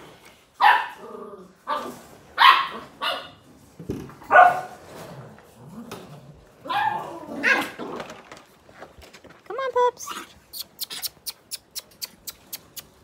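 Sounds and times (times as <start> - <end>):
puppies barking: 0.6 - 1.0, 2.4 - 3.4, 4.3 - 4.8, 6.6 - 7.8.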